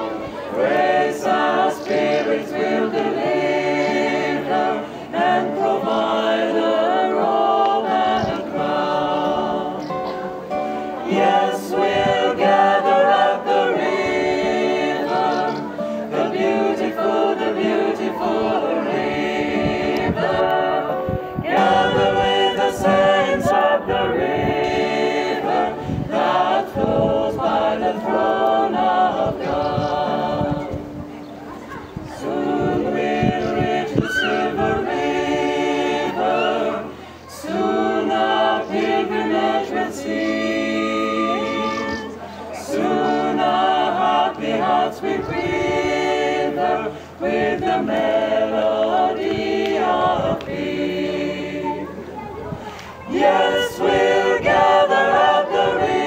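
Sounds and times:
mixed choir singing: 0.0 - 56.0.

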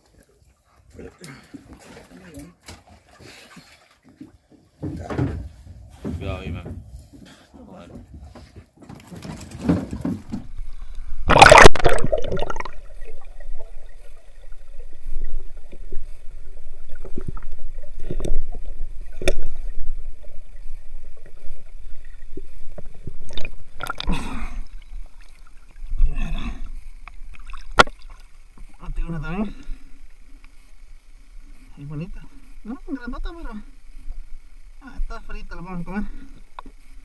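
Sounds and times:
loud splash: 11.2 - 13.2.

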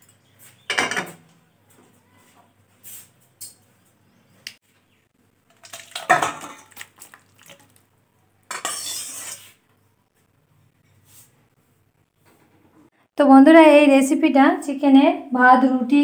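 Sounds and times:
metal pan and bowl clattering: 5.5 - 7.8, 8.5 - 9.5
metal scraping: 8.5 - 9.6.

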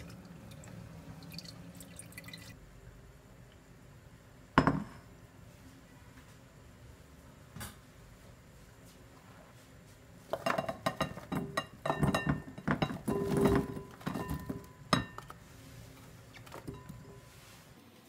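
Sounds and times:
wedges clinking into glass bowl: 10.4 - 15.3.

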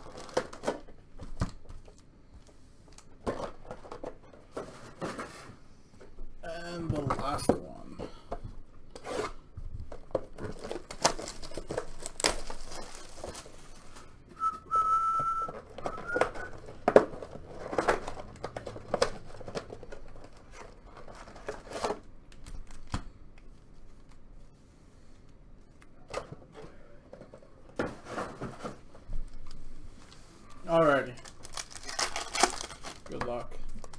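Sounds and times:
shrink-wrap crinkling and tearing: 0.0 - 0.9, 10.3 - 14.1, 30.8 - 33.9
packs rustling: 9.0 - 14.3, 28.0 - 33.9
high whistling tone: 14.3 - 16.6.

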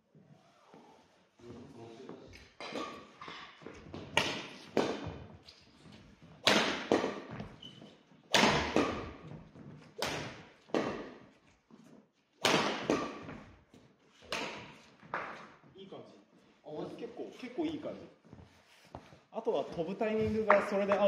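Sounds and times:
racket hitting shuttlecock: 2.6 - 5.6, 6.4 - 11.3, 12.4 - 13.5, 14.2 - 15.6.

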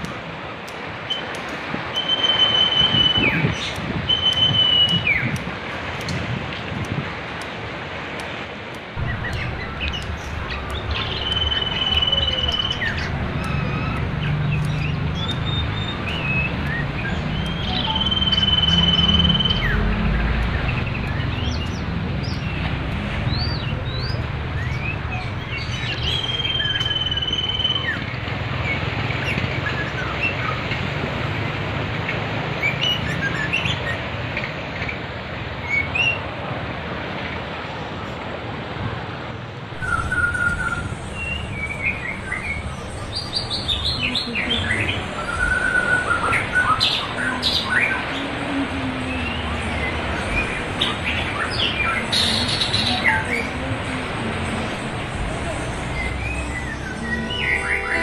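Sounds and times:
rushing river water: 0.0 - 58.0
songbird chirps and whistles: 1.1 - 5.4, 9.0 - 22.6, 23.3 - 30.6, 39.7 - 48.3, 55.6 - 58.0.

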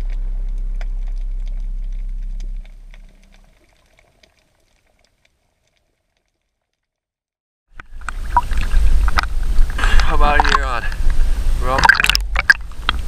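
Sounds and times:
music held low chord: 0.0 - 3.5.

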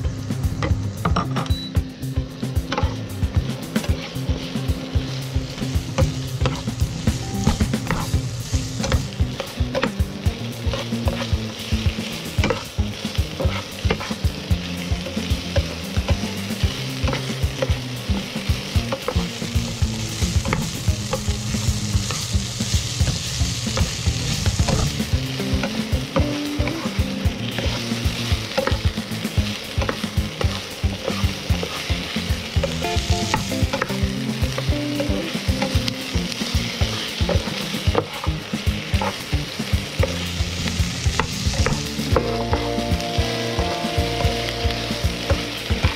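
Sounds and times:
meat and onion sizzling in a pan: 0.0 - 45.9
spatula scraping a pan: 2.7 - 10.0, 10.6 - 11.7, 12.3 - 28.9, 29.8 - 39.3.

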